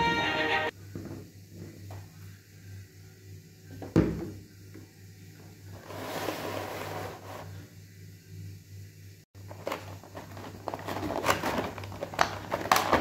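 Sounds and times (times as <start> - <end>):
music: 0.0 - 0.7
plastic rustle: 9.4 - 13.0.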